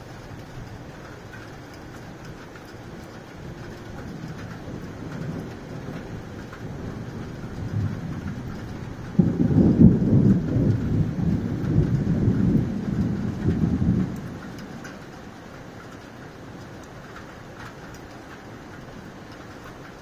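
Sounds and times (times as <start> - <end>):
thunder rumbling: 2.2 - 15.4.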